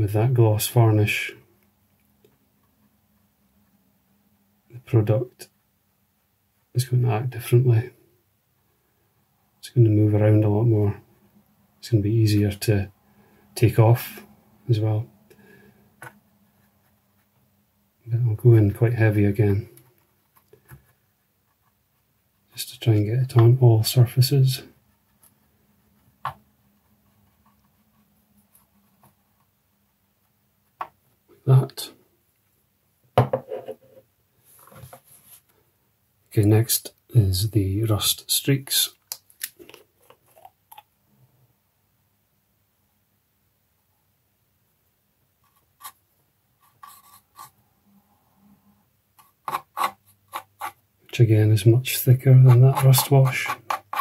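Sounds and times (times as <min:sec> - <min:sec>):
paintbrush scratching: 0:24.8 - 0:30.3, 0:45.4 - 0:46.0, 0:46.6 - 0:47.6, 0:49.2 - 0:50.8, 0:51.9 - 0:54.0
paint bottle clicks and scrapes: 0:52.4 - 0:54.0.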